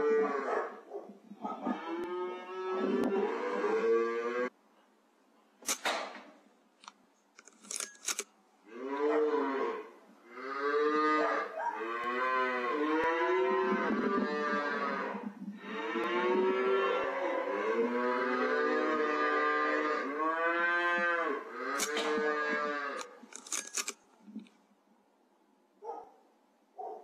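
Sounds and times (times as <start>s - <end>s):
cattle mooing: 1.6s - 4.5s, 8.7s - 23.1s
sharp clicks or knocks: 5.6s - 8.3s.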